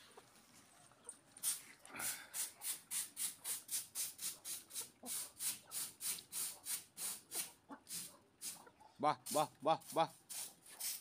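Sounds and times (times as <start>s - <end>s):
person hissing rhythmically: 1.9s - 4.1s.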